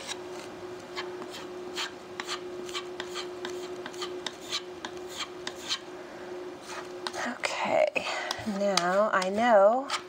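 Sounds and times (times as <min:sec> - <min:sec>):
putty knife scraping wood: 0:01.0 - 0:05.8.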